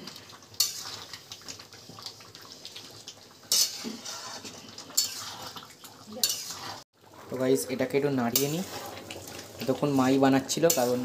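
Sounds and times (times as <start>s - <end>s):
wet slop of gravy: 0.0s - 7.2s
spoon scraping metal pan: 0.6s - 1.1s, 3.5s - 6.9s, 8.3s - 9.0s, 10.6s - 11.0s.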